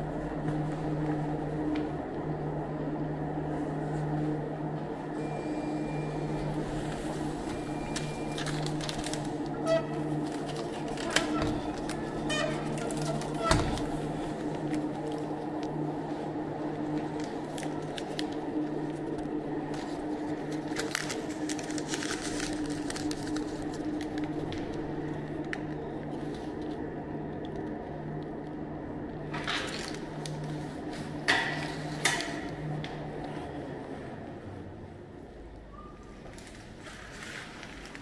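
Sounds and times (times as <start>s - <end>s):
low mechanical hum: 0.0s - 38.0s
paper tickets rustling: 6.4s - 26.8s.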